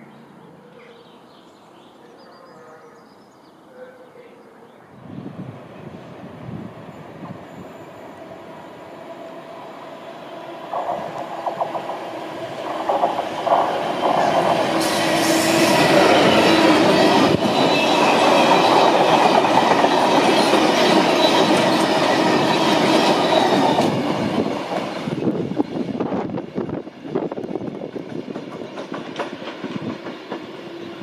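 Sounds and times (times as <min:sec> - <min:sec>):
diesel locomotive passing: 0:04.9 - 0:31.0
train wheels clattering on rails: 0:10.7 - 0:25.6, 0:27.0 - 0:31.0.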